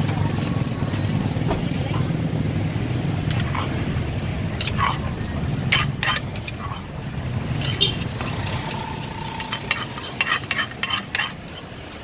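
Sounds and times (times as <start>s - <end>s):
street traffic rumble: 0.0s - 12.0s
spoon clinking in a clay mortar: 7.6s - 12.0s.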